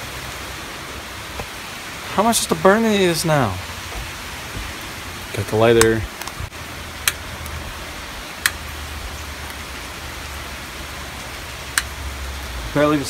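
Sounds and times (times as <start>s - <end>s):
heavy rain falling: 0.0s - 13.0s
sharp clicks: 5.8s - 6.4s, 7.0s - 7.6s, 8.4s - 8.6s, 11.7s - 12.0s.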